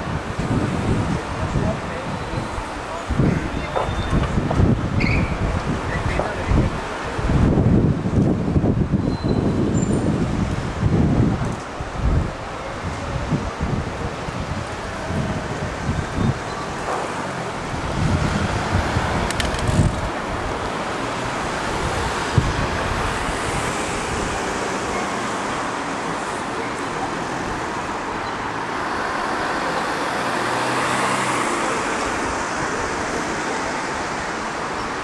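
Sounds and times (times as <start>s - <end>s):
wind thumps on microphone: 0.0s - 24.6s
passing cars: 0.0s - 35.0s.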